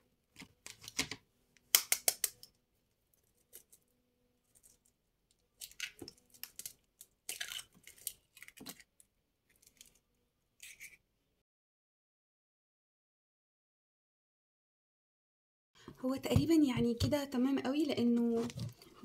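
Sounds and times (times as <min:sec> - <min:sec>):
eggshells cracking: 0:04.5 - 0:10.0.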